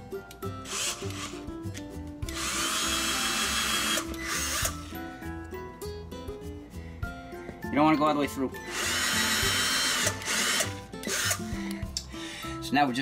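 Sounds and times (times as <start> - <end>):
background music: 0.0 - 13.0
cordless drill whining: 0.6 - 1.4, 2.3 - 4.9, 8.6 - 11.8.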